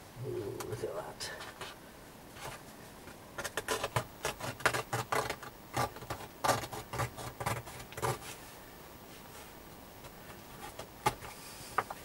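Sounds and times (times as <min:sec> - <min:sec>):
clicks snips and crackles: 0:03.4 - 0:08.2.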